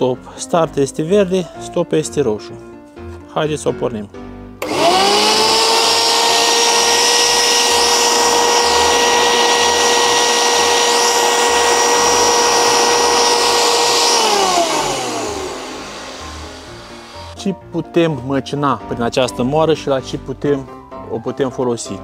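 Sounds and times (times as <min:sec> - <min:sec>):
electric grain mill whining: 0:04.6 - 0:17.4.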